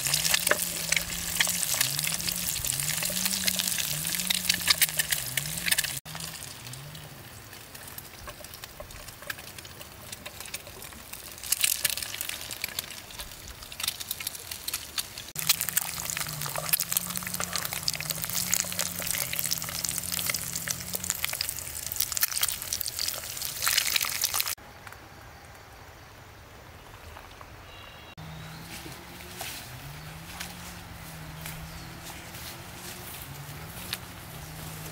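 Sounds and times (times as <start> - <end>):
egg sizzling in oil: 0.0 - 24.6.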